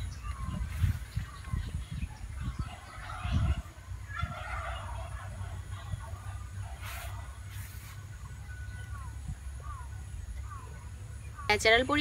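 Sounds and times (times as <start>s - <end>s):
chicken calling: 1.3s - 7.7s.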